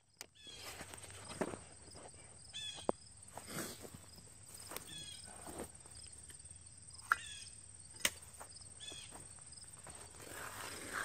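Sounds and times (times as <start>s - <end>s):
high-pitched insect trill: 2.4s - 11.0s.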